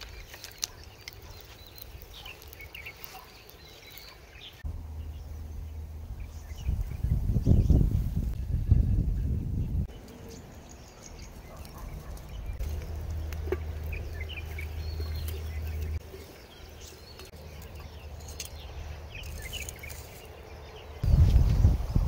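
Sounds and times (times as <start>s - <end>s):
campfire crackling: 0.0s - 6.1s, 9.9s - 21.1s
small birds chirping: 0.0s - 22.0s.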